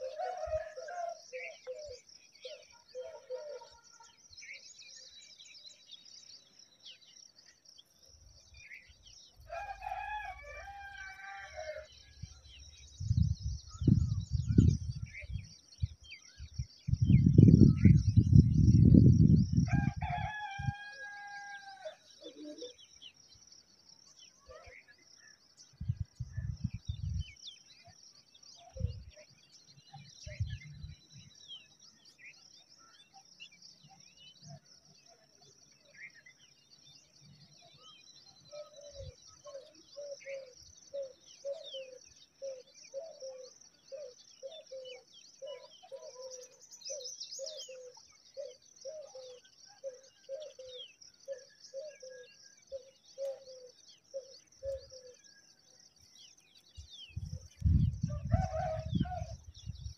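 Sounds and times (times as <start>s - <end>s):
small birds chirping: 0.0s - 59.9s
long falling bird call: 8.8s - 12.7s.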